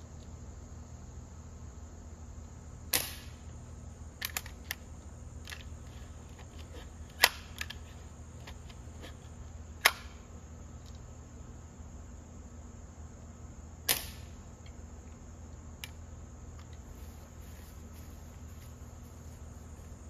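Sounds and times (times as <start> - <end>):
insects chirping: 0.0 - 20.0
air rifle shot: 2.9 - 3.4, 13.9 - 14.4
gun clicks and snaps: 4.2 - 4.8.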